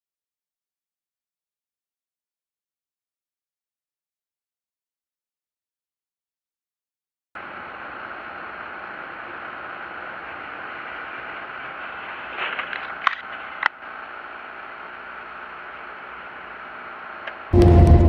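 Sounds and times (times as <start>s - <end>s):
car tyres hissing on wet road: 7.4s - 17.2s.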